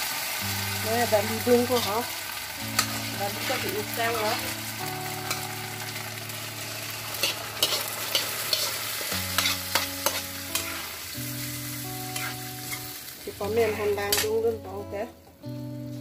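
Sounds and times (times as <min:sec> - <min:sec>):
food sizzling in a pan: 0:00.0 - 0:16.0
soft background music: 0:00.2 - 0:16.0
metal ladle scraping and clinking: 0:07.2 - 0:10.9.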